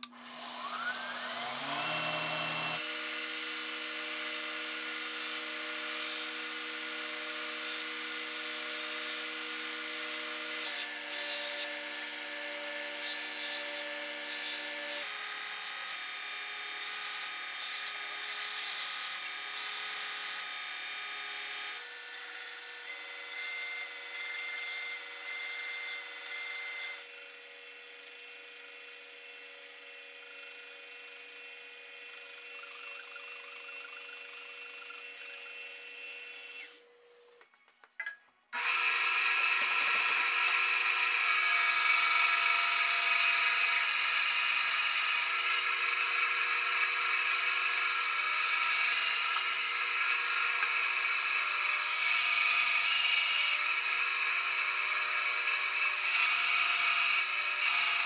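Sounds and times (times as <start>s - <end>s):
belt grinder motor whine: 0.0s - 15.0s, 38.6s - 58.0s
knife blade grinding hiss: 45.3s - 45.7s, 49.2s - 49.8s.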